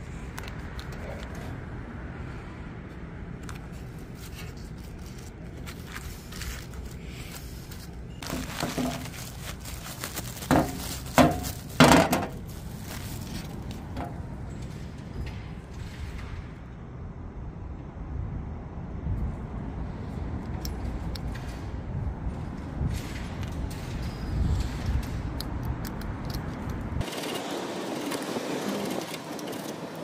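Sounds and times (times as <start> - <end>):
metallic clanks and knocks: 10.5 - 12.4.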